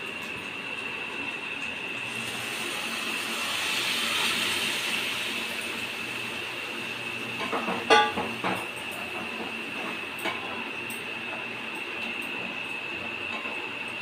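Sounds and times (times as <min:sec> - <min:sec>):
food sizzling in hot oil: 0:01.9 - 0:09.1.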